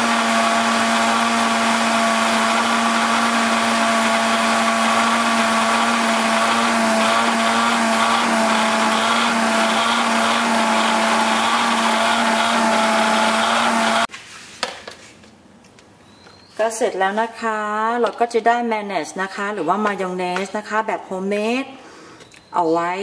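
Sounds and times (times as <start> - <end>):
blender motor running: 0.0 - 14.1.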